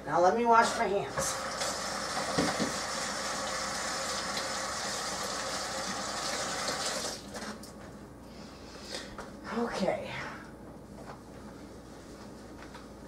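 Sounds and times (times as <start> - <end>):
water running from faucet: 1.2 - 7.3.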